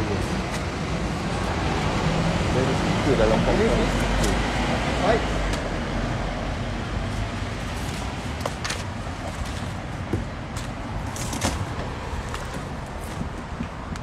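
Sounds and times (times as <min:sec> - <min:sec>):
outdoor rumble: 0:00.0 - 0:14.0
straps and buckles rattling: 0:07.2 - 0:13.8.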